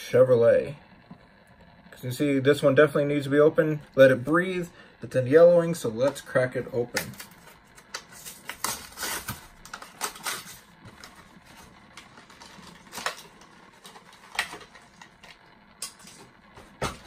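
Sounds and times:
stiff plastic crackling: 3.8 - 17.0.

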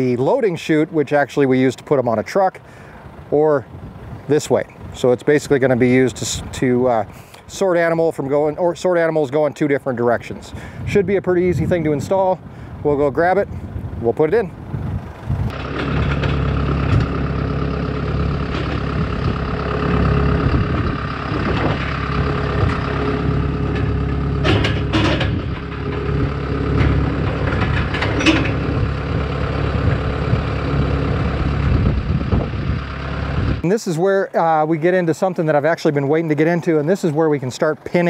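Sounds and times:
engine running steadily: 0.0 - 7.6, 13.4 - 33.7.

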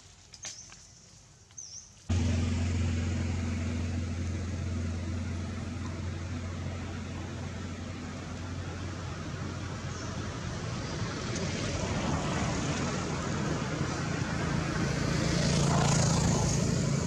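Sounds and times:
quiet forest sounds: 0.0 - 11.5
low motor hum: 2.1 - 10.5.

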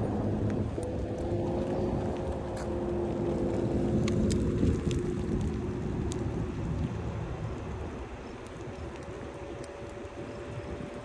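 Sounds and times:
wheels rolling on asphalt: 0.0 - 11.0
faint ticks: 8.2 - 11.0.

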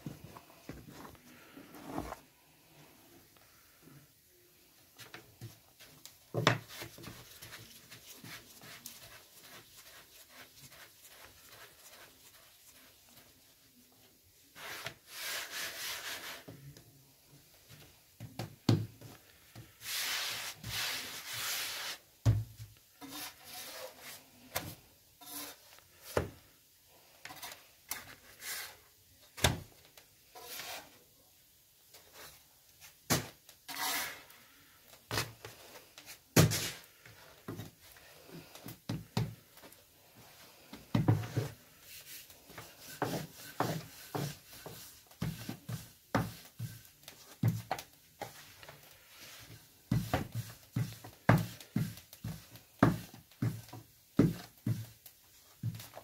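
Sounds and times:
hands rubbing dough on wood: 4.9 - 16.6, 19.0 - 22.1, 35.1 - 56.0.

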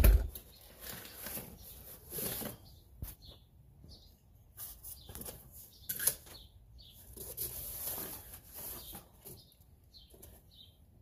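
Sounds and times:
cardboard rustling and scraping: 0.0 - 3.2, 7.0 - 9.6.

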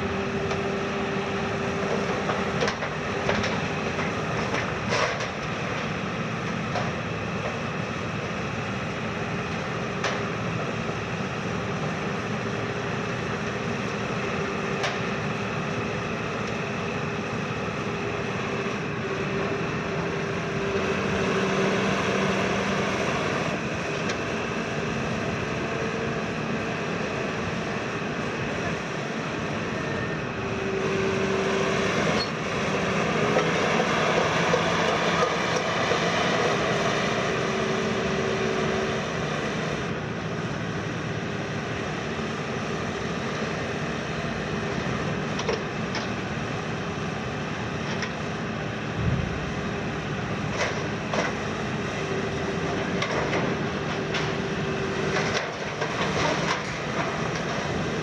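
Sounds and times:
excavator diesel engine and hydraulics: 0.0 - 58.0
low thump: 49.0 - 49.6.

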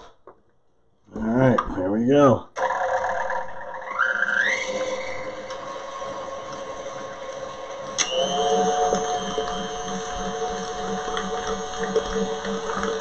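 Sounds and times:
stand mixer motor whining: 2.6 - 13.0.

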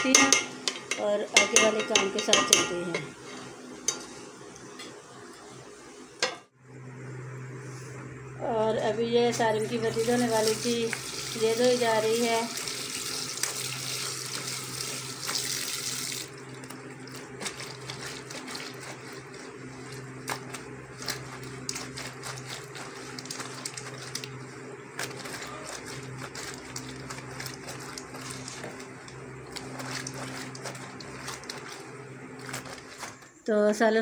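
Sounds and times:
steady low hum: 0.0 - 15.3, 16.0 - 34.0
tap water running: 9.7 - 33.3
shirt scrubbed with soap: 9.8 - 33.4.

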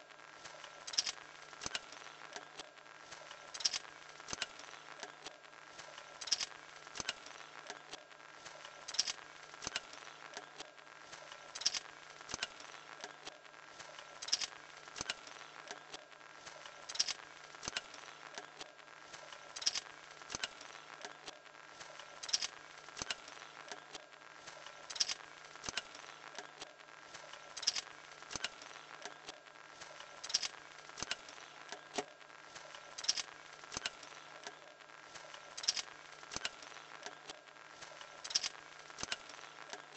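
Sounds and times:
sharp clicks of linkage: 0.9 - 2.5, 3.6 - 5.2, 6.2 - 7.9, 8.9 - 10.5, 11.6 - 13.2, 14.2 - 15.8, 16.9 - 18.6, 19.6 - 21.2, 22.2 - 23.9, 24.9 - 26.6, 27.6 - 29.2, 30.2 - 32.1, 32.7 - 34.6, 35.6 - 39.9.

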